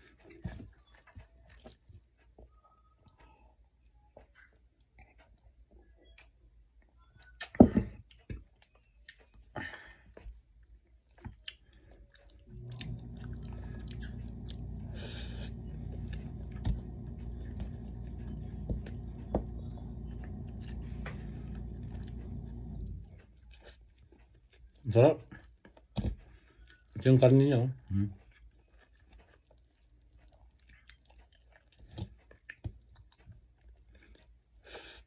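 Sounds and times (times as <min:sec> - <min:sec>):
man chewing food: 0:00.0 - 0:27.2, 0:27.8 - 0:35.0
steady low hum: 0:12.4 - 0:23.6.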